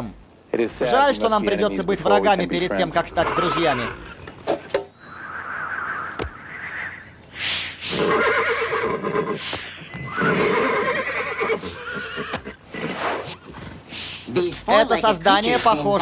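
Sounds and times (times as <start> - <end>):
horse whinnying: 2.9 - 13.8.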